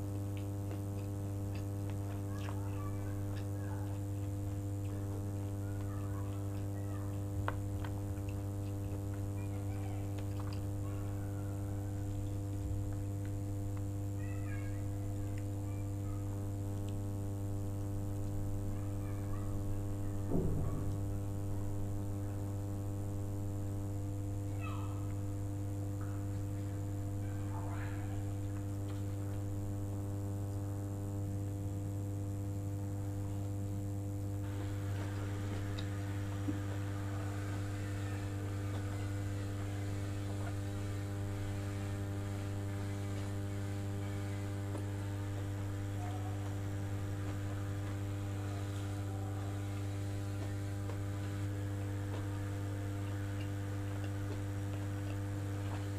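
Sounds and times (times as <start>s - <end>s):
food being handled and eaten: 0.0s - 13.9s, 34.2s - 55.9s
electrical mains hum: 0.0s - 55.9s.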